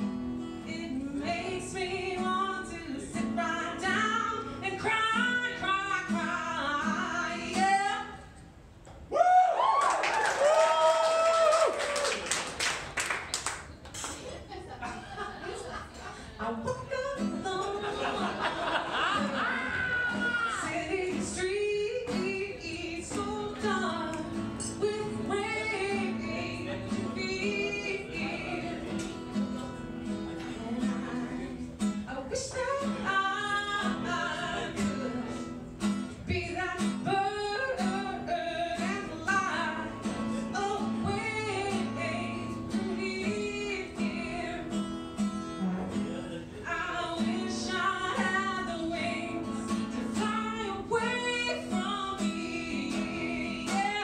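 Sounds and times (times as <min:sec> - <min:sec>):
strummed acoustic guitar: 0:00.0 - 0:08.2, 0:16.0 - 0:54.0
woman singing: 0:00.6 - 0:08.3, 0:16.4 - 0:29.1, 0:30.8 - 0:35.4, 0:36.1 - 0:45.0, 0:46.6 - 0:54.0.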